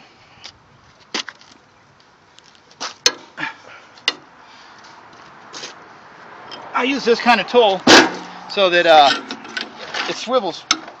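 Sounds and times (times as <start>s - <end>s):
metal clanks and clicks: 9.0s - 11.0s.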